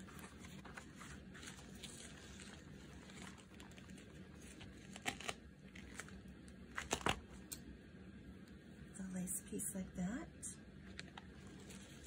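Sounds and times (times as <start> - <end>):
packaging crinkling: 0.0 - 7.6, 10.8 - 12.0.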